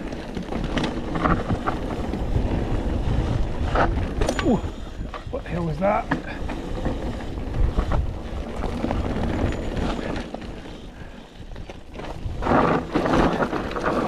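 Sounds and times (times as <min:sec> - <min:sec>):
mountain bike rumbling and rattling: 0:00.0 - 0:14.0
wind buffeting microphone: 0:00.0 - 0:14.0.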